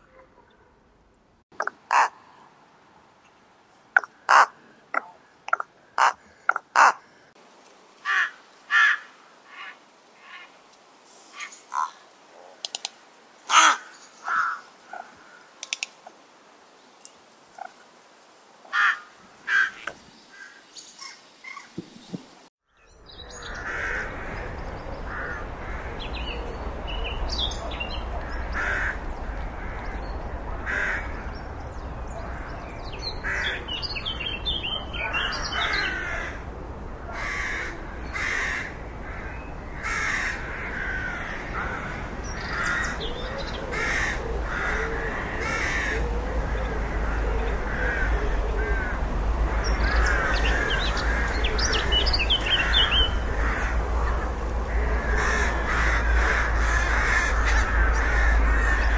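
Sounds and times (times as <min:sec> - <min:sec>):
rooks cawing: 0:01.6 - 0:02.4, 0:04.0 - 0:07.4, 0:08.0 - 0:10.5, 0:11.4 - 0:12.1, 0:13.4 - 0:15.6, 0:18.7 - 0:21.7, 0:23.3 - 0:36.5, 0:37.1 - 0:58.9
steady low rumble: 0:23.1 - 0:58.9.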